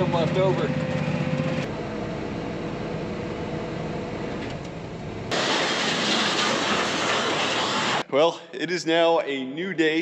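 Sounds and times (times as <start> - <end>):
cab fan noise: 0.0 - 8.1
tractor engine drone: 0.0 - 8.1
loud steady hiss: 5.3 - 8.1.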